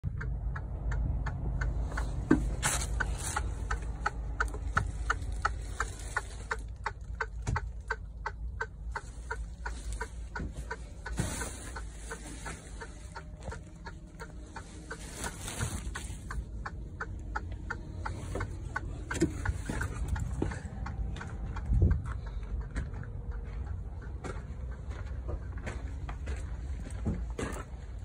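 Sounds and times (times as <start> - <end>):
low constant rumble: 0.0 - 28.0
rapid ticking in truck cab: 0.0 - 28.0.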